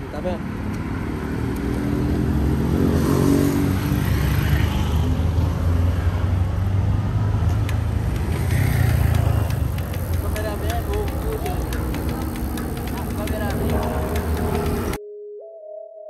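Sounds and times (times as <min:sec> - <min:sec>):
street traffic: 0:00.0 - 0:15.0
motorcycle engine running: 0:08.0 - 0:15.0.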